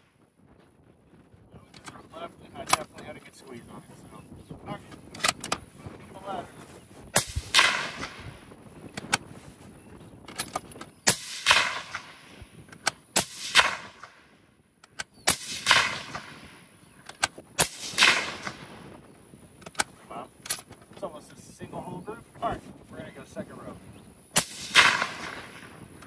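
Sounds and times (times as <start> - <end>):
rifle shots: 7.1 - 8.5, 10.3 - 14.3, 14.9 - 19.0, 24.3 - 26.0.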